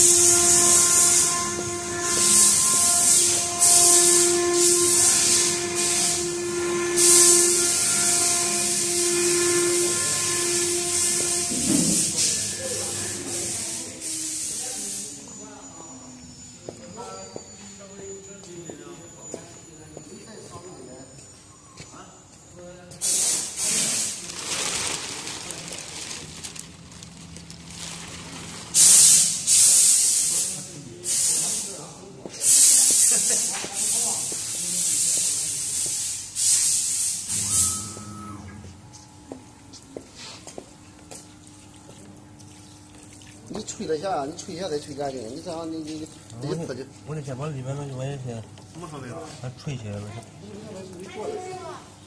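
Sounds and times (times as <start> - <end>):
high hiss: 0.0 - 15.8, 28.8 - 38.7
machine hum with overtones: 0.0 - 22.6, 37.2 - 48.9
plastic sheeting crinkling: 23.6 - 29.3.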